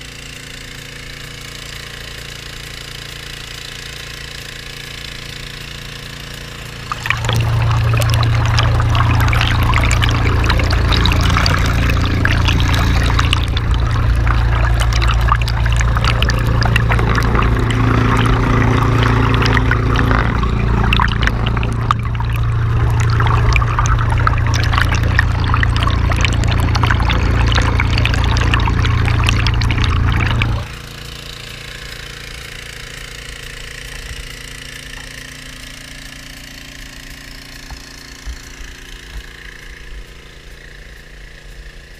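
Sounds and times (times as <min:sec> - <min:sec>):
engine and pump running: 0:00.0 - 0:41.9
water rushing down sluice box: 0:06.8 - 0:30.8.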